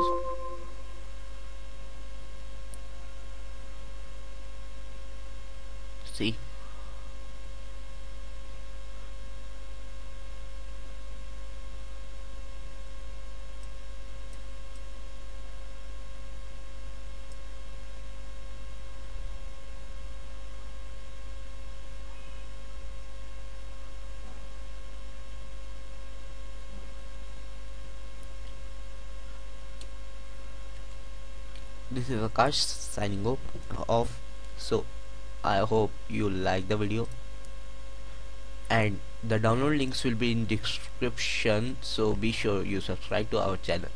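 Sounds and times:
high whining tones: 0:00.0 - 0:00.8
electrical mains hum: 0:00.0 - 0:43.9.

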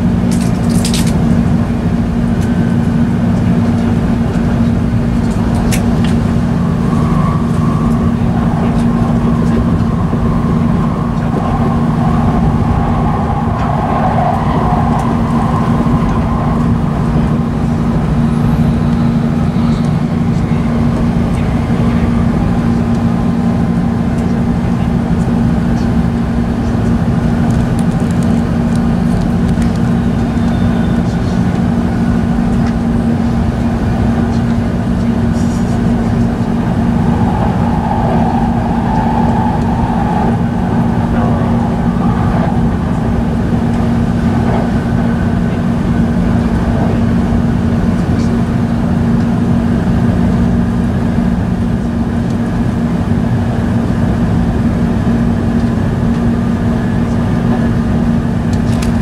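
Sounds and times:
constant low hum: 0:00.0 - 0:59.0
train wheels rumbling: 0:00.0 - 0:59.0.

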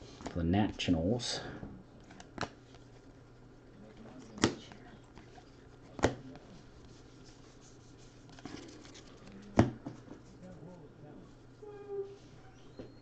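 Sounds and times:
trading cards rustling: 0:04.0 - 0:10.3
sharp card taps: 0:06.0 - 0:06.2.

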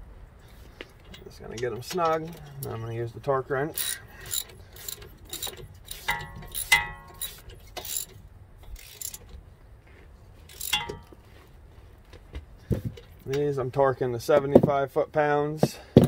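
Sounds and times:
metal clinks: 0:03.7 - 0:09.3, 0:10.5 - 0:11.4
socket ratchet clicking: 0:03.7 - 0:09.3, 0:10.5 - 0:11.1.

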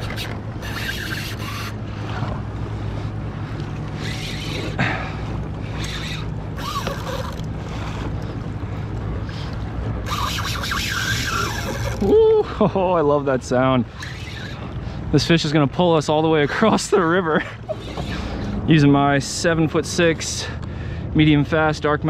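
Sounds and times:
fishing reel drag buzzing: 0:00.0 - 0:02.3, 0:03.8 - 0:08.2, 0:10.0 - 0:12.1, 0:13.9 - 0:14.7
water rushing along hull: 0:00.0 - 0:22.0.

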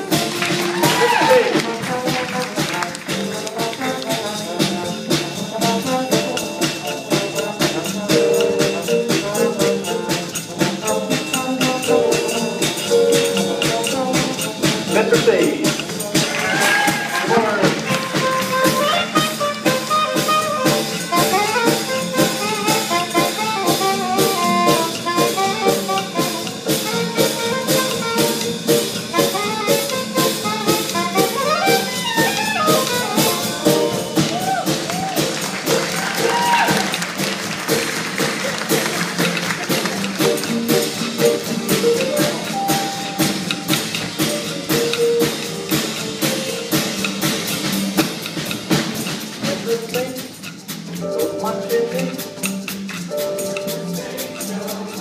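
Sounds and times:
drum kit beat: 0:00.0 - 0:55.0
jazz band playing: 0:00.0 - 0:55.0
saxophone melody: 0:16.0 - 0:34.6.

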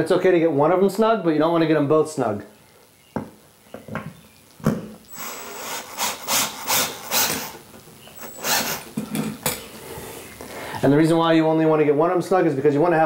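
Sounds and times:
cordless drill driving bolt: 0:05.1 - 0:07.6, 0:08.2 - 0:09.6.

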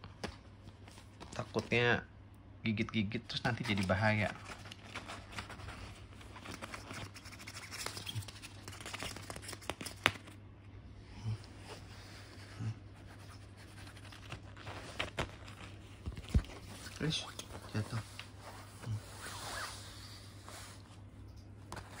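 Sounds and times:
kitten claws scratching cloth: 0:03.6 - 0:10.4, 0:11.8 - 0:21.0.

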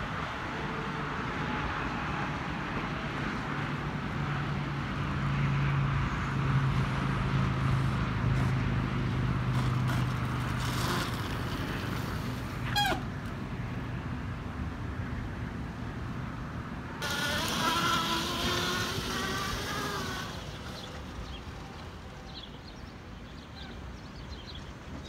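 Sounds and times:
tyre road noise: 0:00.0 - 0:25.0
short squeal: 0:12.6 - 0:13.1
electric motor hum: 0:17.0 - 0:22.4.

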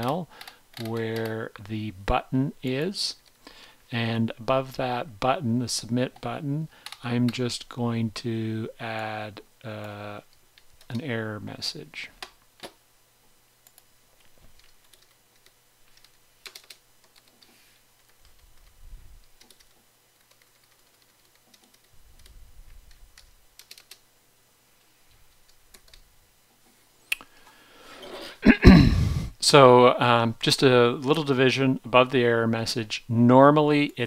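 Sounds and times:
typing on computer keyboard: 0:14.6 - 0:22.4, 0:23.2 - 0:24.0.

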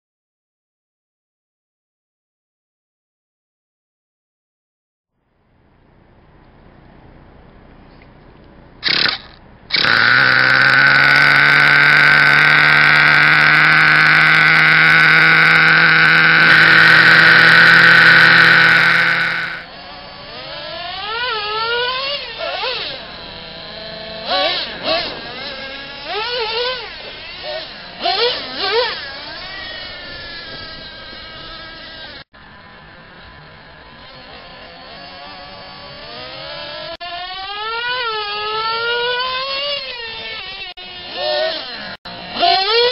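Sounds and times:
rc truck nitro engines revving: 0:08.8 - 0:42.9.

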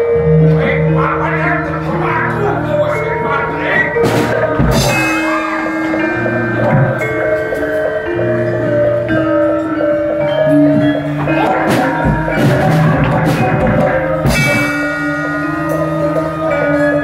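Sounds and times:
metallophone and gong tones: 0:00.0 - 0:17.0
drum and percussion strikes: 0:04.0 - 0:08.6, 0:10.4 - 0:17.0.

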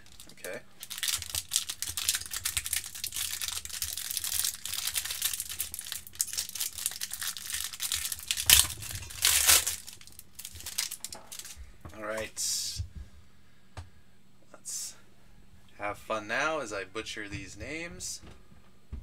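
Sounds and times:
plastic wrapper crinkling: 0:00.0 - 0:11.6.

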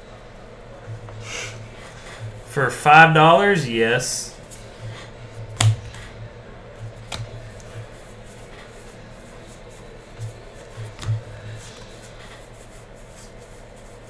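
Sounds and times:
cards sliding papery rubbing: 0:07.2 - 0:14.0.

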